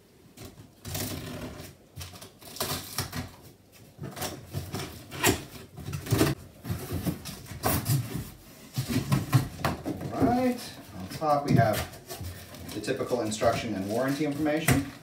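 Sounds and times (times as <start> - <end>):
scissors cutting packing tape: 2.0 - 3.4.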